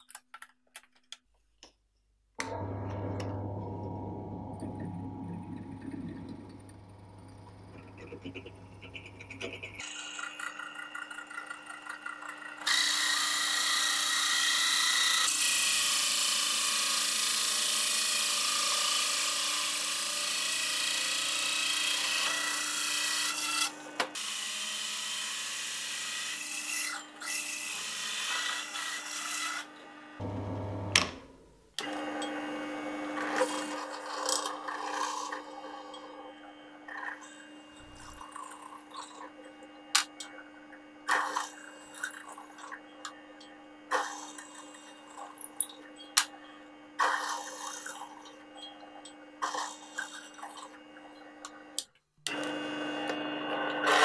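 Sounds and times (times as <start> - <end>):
drill press motor humming: 2.4 - 11.7.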